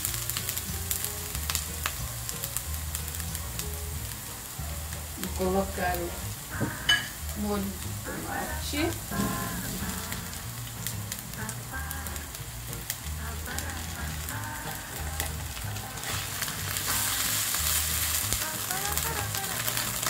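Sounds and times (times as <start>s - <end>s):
onion and garlic sizzling in oil: 0.0s - 20.0s
spatula stirring in a pan: 0.3s - 20.0s.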